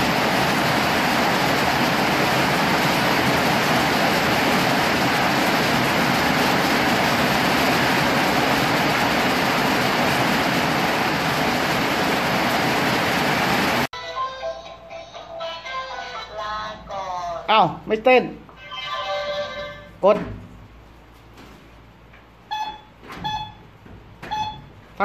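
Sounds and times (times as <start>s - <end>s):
heavy rain on metal roof: 0.0s - 13.9s.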